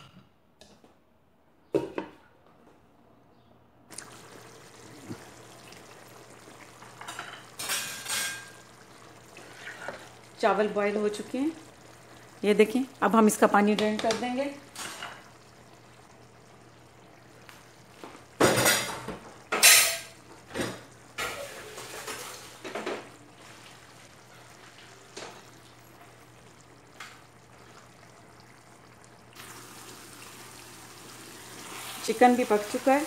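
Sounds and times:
pan sizzling: 3.9 - 33.0
pot clattering: 6.8 - 8.9, 18.4 - 23.2.

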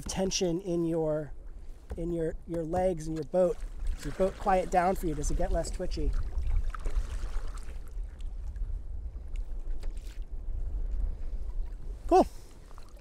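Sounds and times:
water lapping against hull: 0.0 - 13.0
paddle splashing: 1.4 - 8.4, 9.3 - 13.0
wind rumble on microphone: 3.6 - 13.0.

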